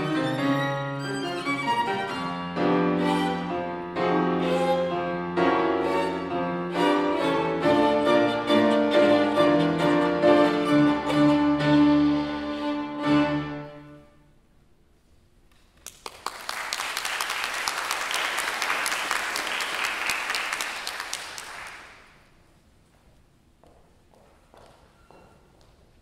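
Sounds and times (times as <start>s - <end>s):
violin and piano chord: 0.0s - 14.2s
audience applause: 15.9s - 22.1s.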